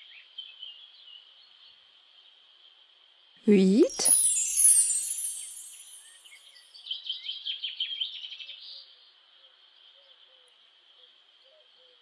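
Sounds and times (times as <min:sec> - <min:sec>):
birds chirping: 0:03.5 - 0:06.3
high sparkling chime: 0:03.5 - 0:06.6.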